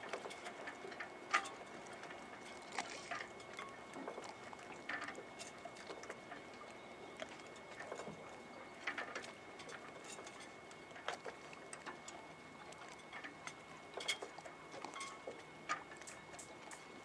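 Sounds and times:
small clicks and ticks: 0.0 - 17.0.

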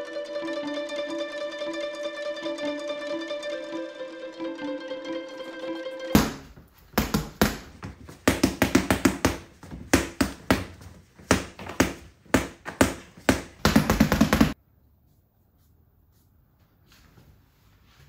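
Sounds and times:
boxing gloves punching a painting: 6.2 - 14.6.

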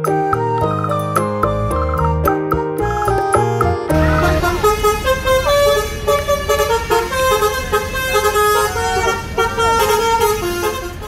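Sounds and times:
music jingle: 0.0 - 10.4
bus engine and yard noise: 2.8 - 11.0
bus horn playing a melody: 2.8 - 11.0.

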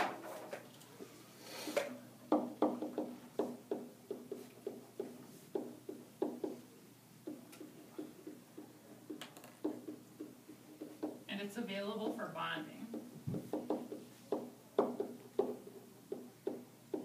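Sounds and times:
marker tapping on whiteboard: 2.3 - 6.6, 7.2 - 11.3, 12.9 - 17.0.

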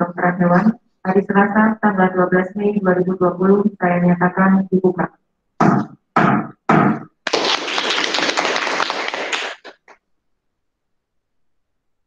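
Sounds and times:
applause: 7.3 - 10.0.

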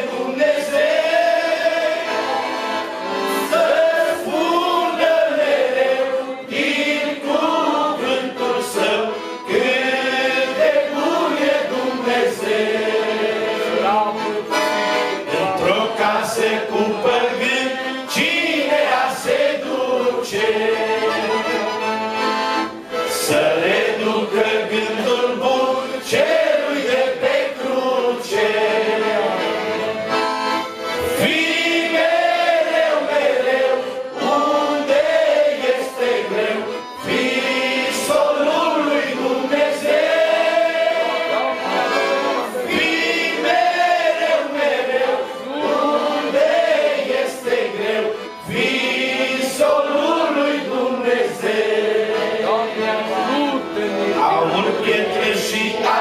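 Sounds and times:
piano accordion: 0.0 - 56.0
man singing into a microphone: 15.3 - 21.7, 52.4 - 56.0.

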